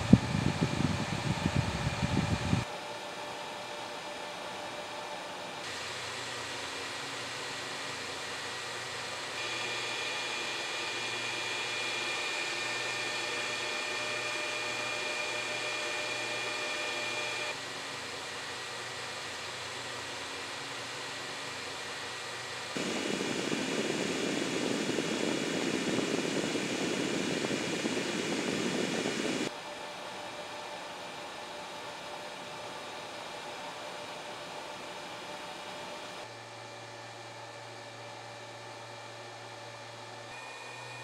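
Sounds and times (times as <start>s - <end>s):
fans blowing air: 0.0s - 2.9s, 22.3s - 31.1s
faint high whine: 22.8s - 29.5s.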